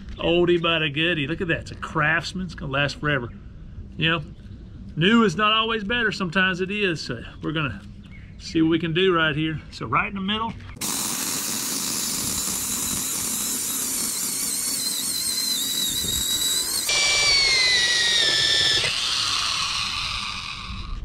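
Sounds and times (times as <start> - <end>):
electric drill boring into wood: 10.8 - 21.0.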